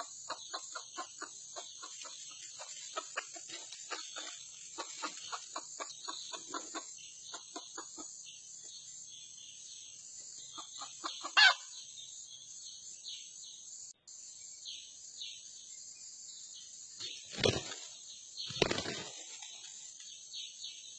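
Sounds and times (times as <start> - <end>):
junglefowl clucking: 0.0 - 8.2, 10.5 - 11.7
high insect hiss: 0.0 - 20.9.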